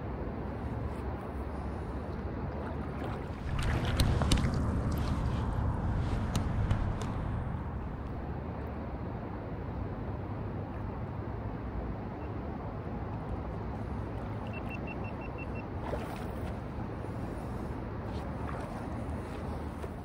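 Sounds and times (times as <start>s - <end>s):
wind rumbling on microphone: 0.0s - 8.5s
small waves lapping: 0.4s - 8.3s, 13.5s - 20.0s.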